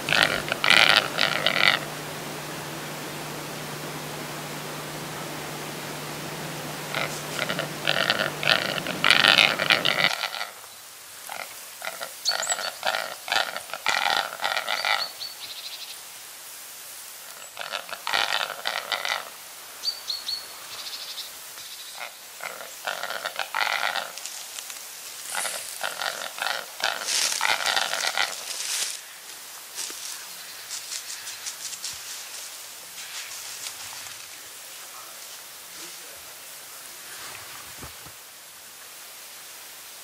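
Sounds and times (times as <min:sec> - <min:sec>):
grouse rattling display calls: 0:00.0 - 0:02.0, 0:06.8 - 0:10.7, 0:11.3 - 0:15.8, 0:17.2 - 0:29.0.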